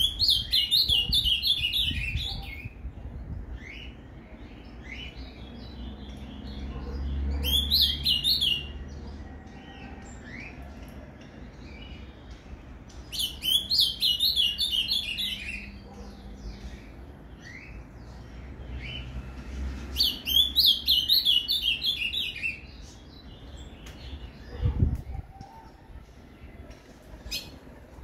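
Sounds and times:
bird chirps: 3.5s - 10.9s, 11.7s - 19.2s, 19.9s - 26.1s.

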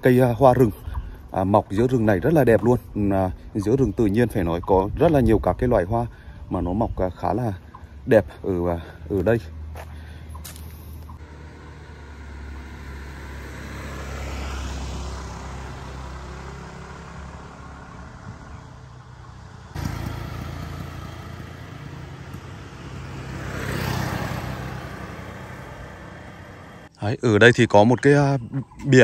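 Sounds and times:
low engine hum of traffic: 0.0s - 29.0s
motor scooter passing: 11.0s - 26.9s.

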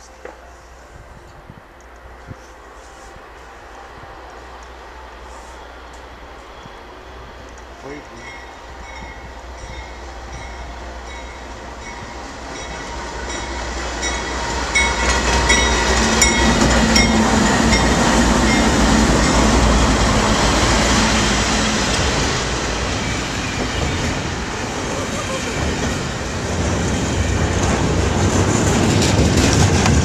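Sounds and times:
diesel locomotives passing: 0.0s - 30.0s.

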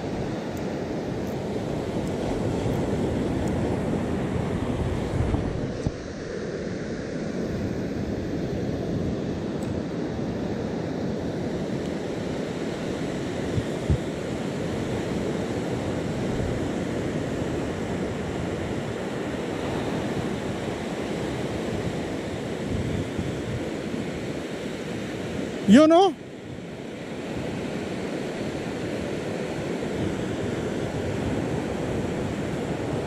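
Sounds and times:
wind buffeting microphone: 1.2s - 6.3s, 12.0s - 25.3s
surf breaking on beach: 11.7s - 33.0s.

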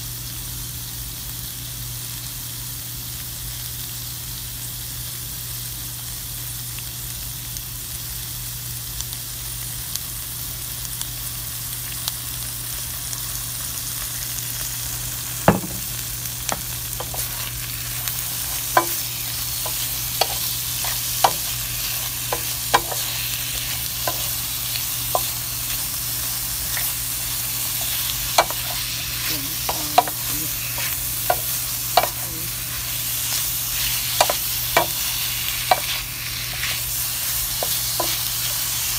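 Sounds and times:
vegetables sizzling in a pan: 0.0s - 38.9s
wooden spatula clacking on pan: 18.7s - 21.5s.

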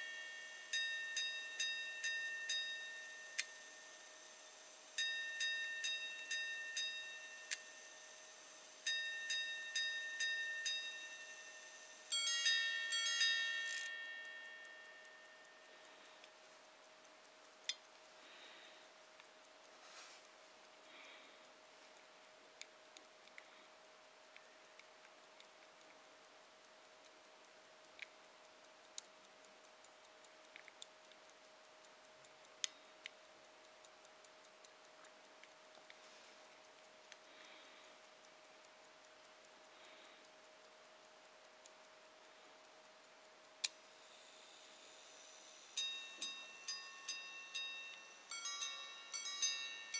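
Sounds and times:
faint steady tone: 0.0s - 49.9s
pocket watch ticking: 0.0s - 49.9s
sharp clicks: 0.0s - 49.9s.

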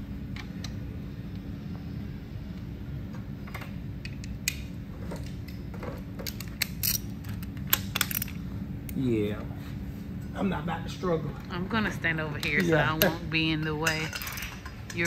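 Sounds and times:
steady low hum: 0.0s - 15.0s
metal tools clinking: 13.8s - 15.0s.

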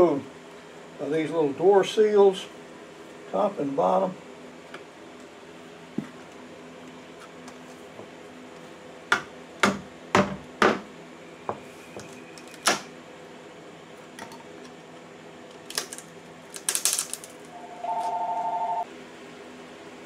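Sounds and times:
two-note electronic tone: 17.5s - 18.8s.

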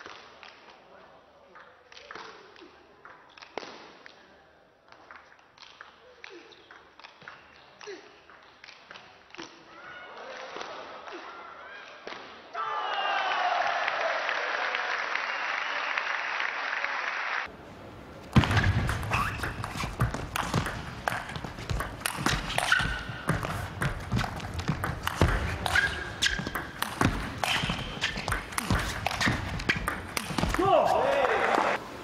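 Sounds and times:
crowd cheering: 9.7s - 17.5s, 30.2s - 31.8s.

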